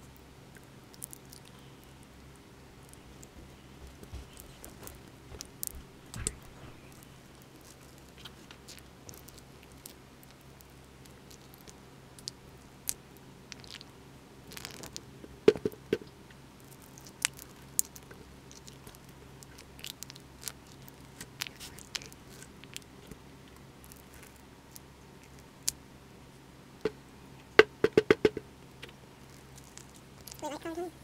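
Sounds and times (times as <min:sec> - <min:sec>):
sharp knocks: 0:27.6 - 0:28.4.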